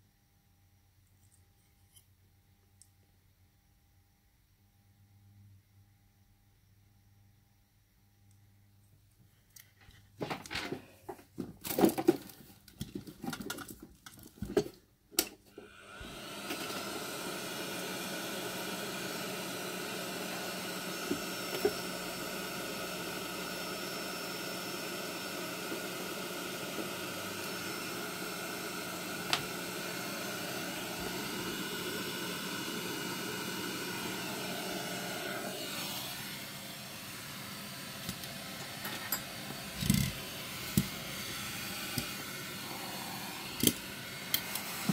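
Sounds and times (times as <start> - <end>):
plastic parts clicking and knocking: 9.6 - 15.4
hot-air gun blower hissing: 15.5 - 44.9.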